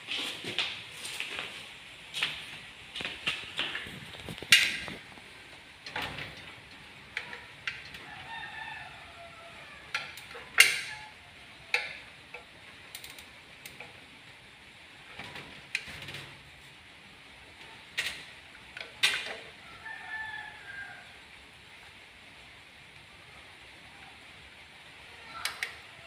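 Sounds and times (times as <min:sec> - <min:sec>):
rooster crowing: 0:07.2 - 0:11.7, 0:19.5 - 0:21.3, 0:25.1 - 0:26.0.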